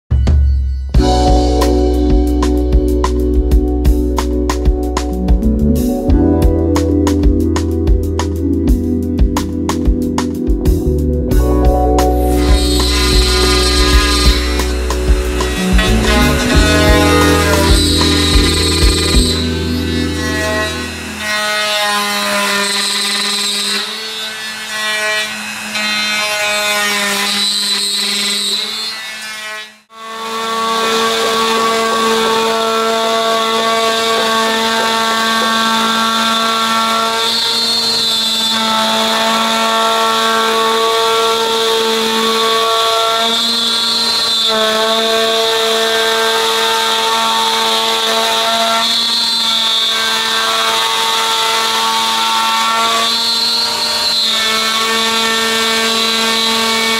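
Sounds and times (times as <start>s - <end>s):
plunge router whining: 1.0s - 56.9s
router cutting wood: 11.8s - 56.9s.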